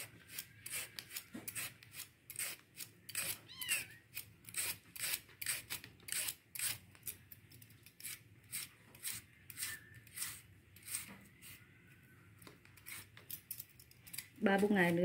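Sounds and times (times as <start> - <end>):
slicer scraping bamboo shoot: 0.0 - 3.4, 4.1 - 7.1, 8.0 - 11.6, 12.7 - 13.4.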